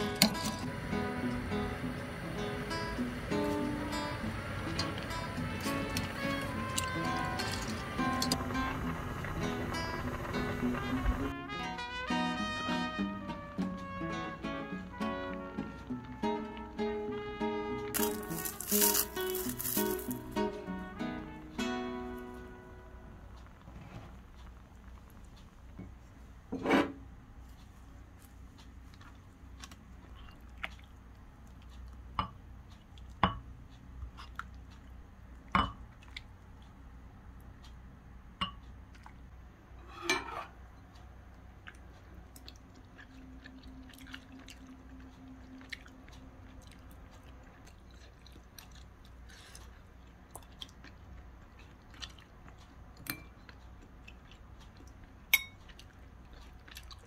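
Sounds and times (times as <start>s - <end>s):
chewing: 27.5s - 33.2s, 34.0s - 35.0s, 40.8s - 57.0s.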